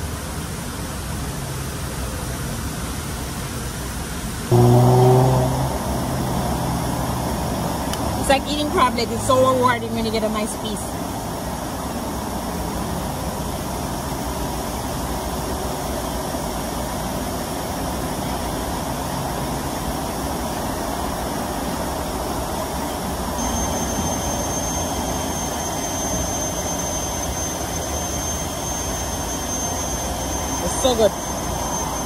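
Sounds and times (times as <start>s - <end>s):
high-pitched whine: 3.2s - 32.0s
road traffic rushing: 4.5s - 14.2s.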